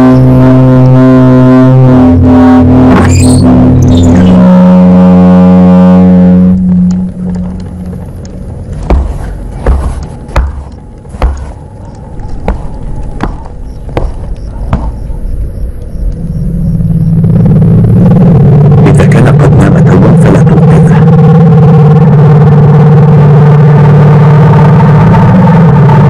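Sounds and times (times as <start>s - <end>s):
sharp knocks with low thuds: 8.7s - 15.3s.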